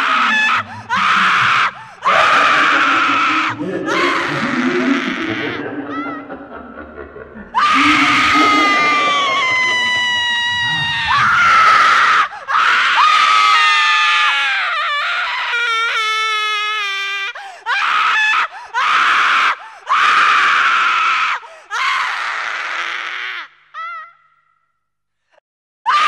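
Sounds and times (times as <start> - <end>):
high screams: 0.0 - 5.7, 7.6 - 16.0, 17.8 - 24.3.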